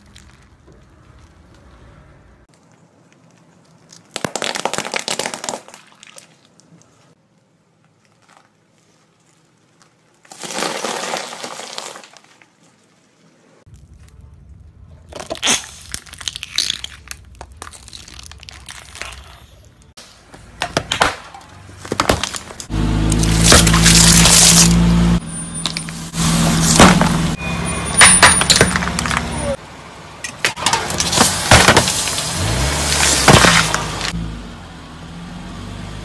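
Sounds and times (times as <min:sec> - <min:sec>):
sharp cracks and snaps: 0:02.5 - 0:06.9, 0:15.1 - 0:20.0
car tyre crushing plastic: 0:03.4 - 0:06.3, 0:08.0 - 0:12.6, 0:15.0 - 0:24.8, 0:25.6 - 0:27.4, 0:30.2 - 0:34.2.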